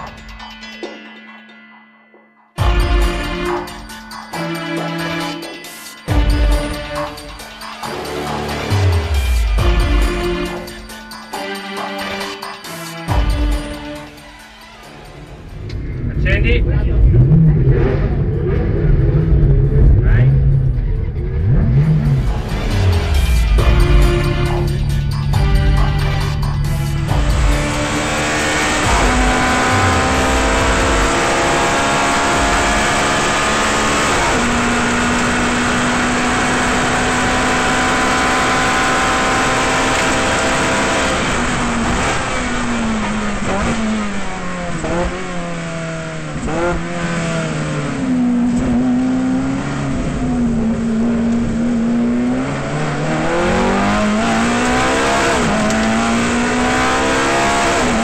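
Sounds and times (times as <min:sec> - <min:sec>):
race car engine revving: 0:15.3 - 0:58.0.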